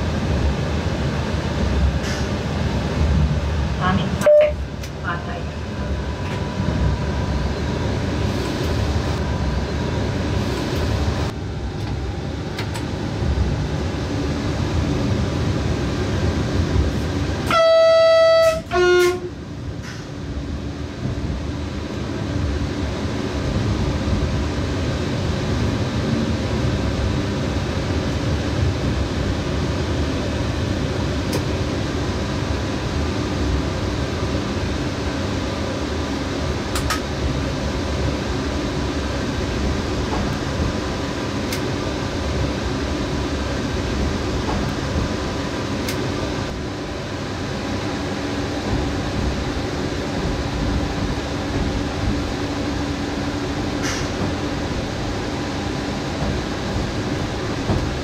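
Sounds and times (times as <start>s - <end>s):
train wheels rumbling on rail: 0.0s - 58.0s
two-tone train horn: 4.2s - 4.6s, 17.4s - 19.4s.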